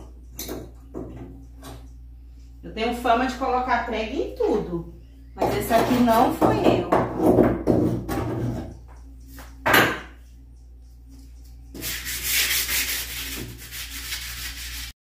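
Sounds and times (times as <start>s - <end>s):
sandpaper rubbing on wood: 11.8s - 15.0s.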